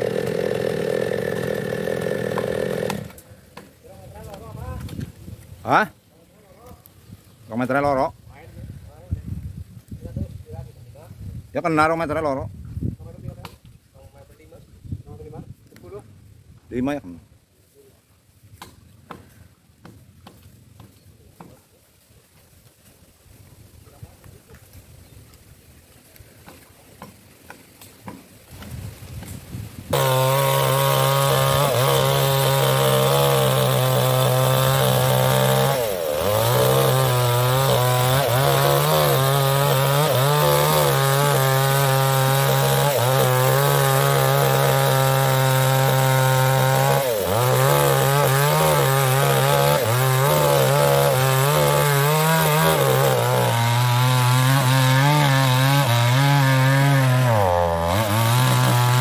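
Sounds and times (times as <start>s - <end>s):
chainsaw cutting log: 0.0s - 5.1s, 18.5s - 21.6s, 26.2s - 59.0s.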